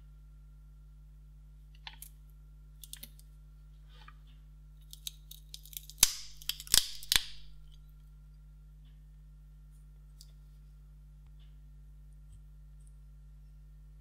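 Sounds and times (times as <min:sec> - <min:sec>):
faint low hum: 0:00.0 - 0:14.0
battery cells clicking: 0:02.8 - 0:03.3, 0:04.8 - 0:07.8.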